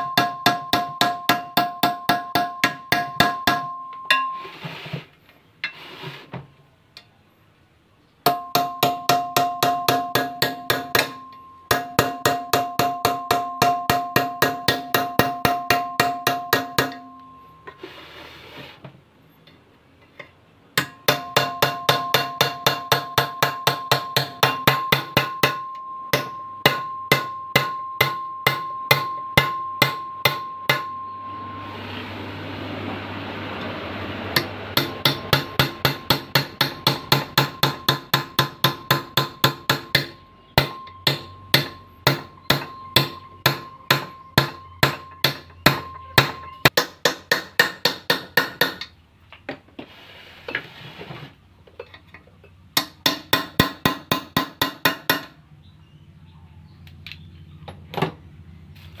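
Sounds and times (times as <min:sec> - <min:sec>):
hammer striking chisel on metal: 0:00.0 - 0:04.6, 0:08.2 - 0:17.8, 0:20.2 - 0:31.2, 0:34.4 - 0:49.0, 0:52.8 - 0:55.4.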